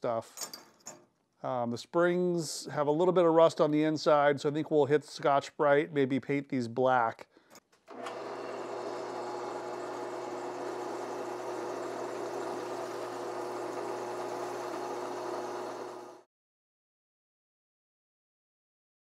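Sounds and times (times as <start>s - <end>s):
drill press motor hum: 7.9s - 16.3s.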